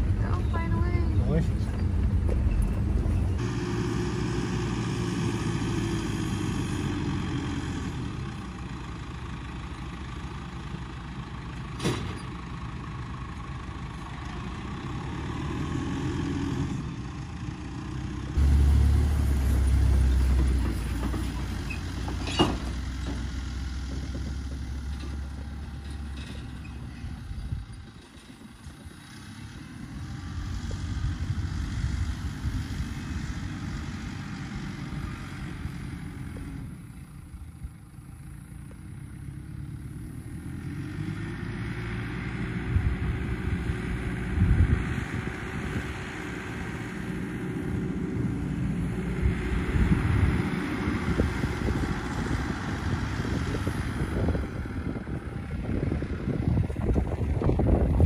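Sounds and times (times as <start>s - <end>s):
tractor engine running: 0.0s - 58.0s
wind buffeting microphone: 42.6s - 46.2s, 48.8s - 58.0s.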